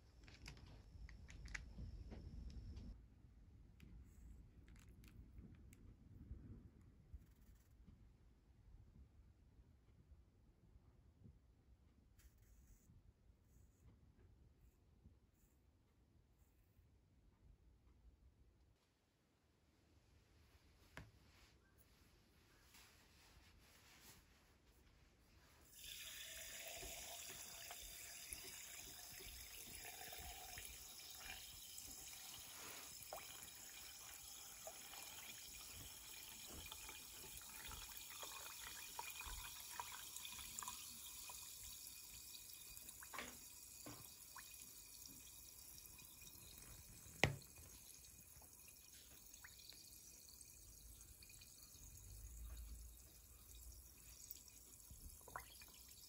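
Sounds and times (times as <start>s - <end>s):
drink pouring into glass: 25.7s - 41.9s
bubbles crackling: 46.2s - 56.0s.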